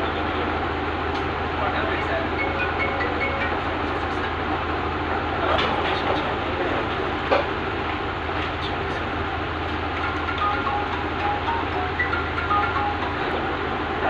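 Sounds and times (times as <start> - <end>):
background din: 9.9 - 13.5.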